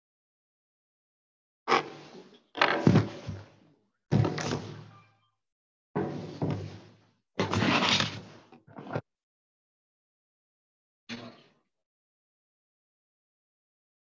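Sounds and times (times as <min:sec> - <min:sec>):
knocks and thumps: 0:02.6 - 0:04.8, 0:06.0 - 0:07.6.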